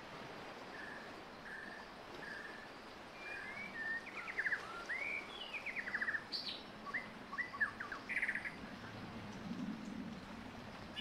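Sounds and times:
songbirds singing: 0.8s - 9.0s.

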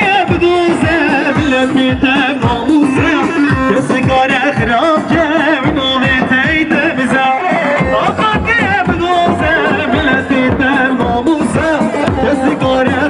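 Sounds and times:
folk dance band music: 0.0s - 13.0s
steady drum beat: 0.0s - 13.0s.

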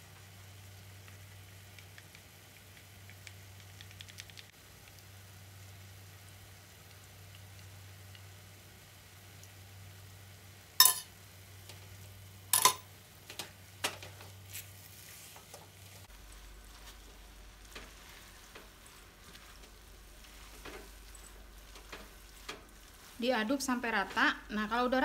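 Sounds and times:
faint sizzle: 0.0s - 25.0s
metal spoon clinking: 10.8s - 11.1s, 12.5s - 12.9s
spatula scraping in wok: 14.5s - 24.8s.

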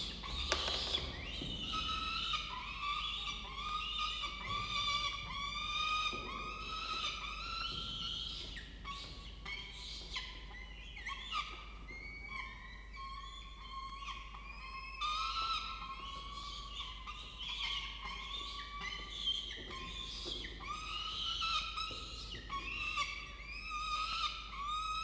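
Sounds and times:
chicks begging calls: 0.0s - 7.8s.

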